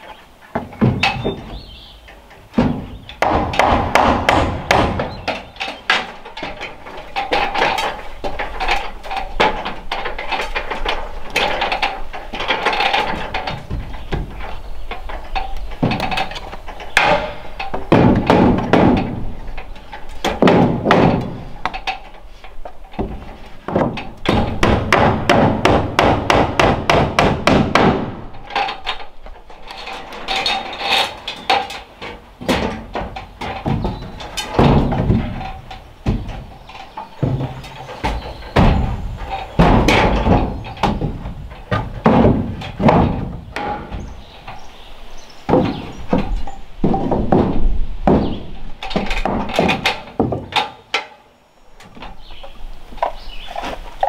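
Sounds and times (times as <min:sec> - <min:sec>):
hammer striking wooden boards: 0:02.5 - 0:10.1, 0:15.8 - 0:22.0, 0:23.0 - 0:28.7, 0:32.4 - 0:44.2, 0:45.5 - 0:51.1.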